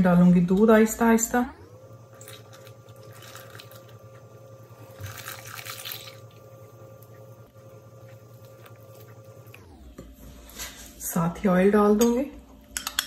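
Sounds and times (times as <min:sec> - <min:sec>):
faint steady hum: 0:00.0 - 0:13.0
milk pouring: 0:02.1 - 0:09.6.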